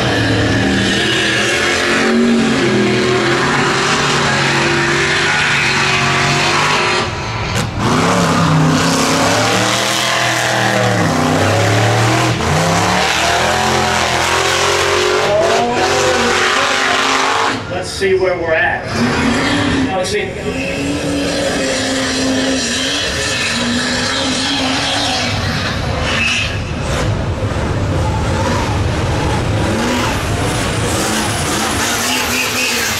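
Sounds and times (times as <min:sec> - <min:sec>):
tires throwing dirt: 0:00.0 - 0:17.8, 0:18.8 - 0:32.9
truck engine revving: 0:00.0 - 0:17.9, 0:18.7 - 0:32.9.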